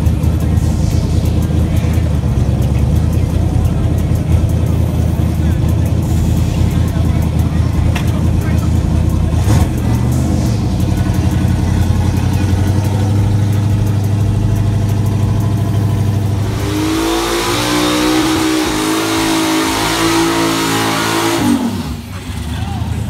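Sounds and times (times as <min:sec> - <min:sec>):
loud car engine revving: 0:00.0 - 0:23.0
tyres squealing in a burnout: 0:08.6 - 0:23.0.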